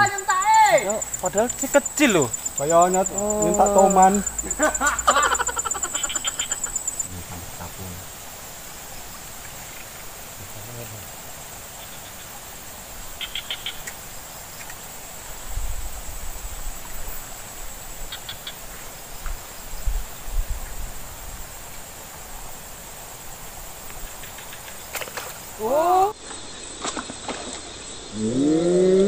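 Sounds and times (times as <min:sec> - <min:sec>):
rapid chirping trills: 0:00.0 - 0:07.5
insects hissing: 0:00.0 - 0:29.0
low rumbles: 0:00.8 - 0:08.0.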